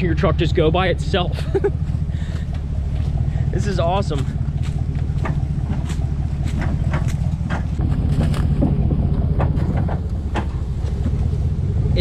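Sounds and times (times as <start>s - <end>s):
low engine rumble: 0.0s - 12.0s
tyres crunching over rocks: 2.3s - 11.4s.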